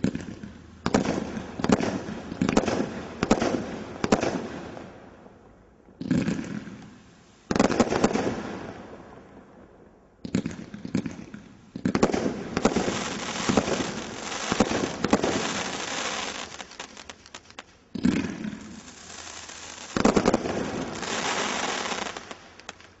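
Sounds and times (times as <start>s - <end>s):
firework shots: 0.0s - 4.9s, 6.0s - 8.9s, 10.2s - 23.0s
firework crackling: 11.8s - 23.0s.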